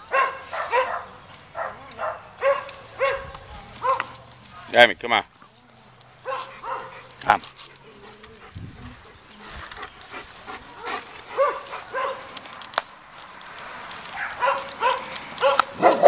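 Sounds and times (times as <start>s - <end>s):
dog barking and yipping: 0.1s - 4.2s, 6.2s - 7.3s, 10.8s - 12.3s, 14.1s - 16.0s.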